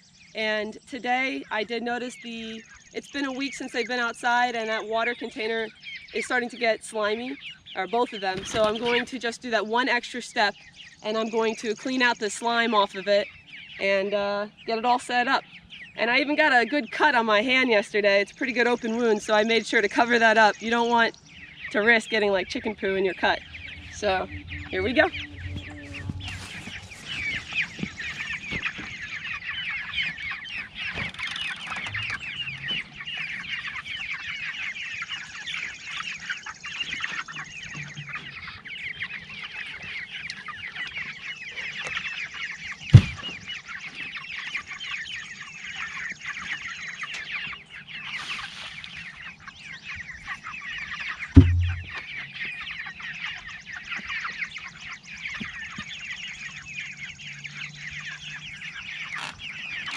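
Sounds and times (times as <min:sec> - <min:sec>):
chicks peeping and chattering: 0:00.0 - 0:59.9
loud thumps: 0:23.3 - 0:28.1, 0:43.0 - 0:43.2, 0:51.4 - 0:52.0.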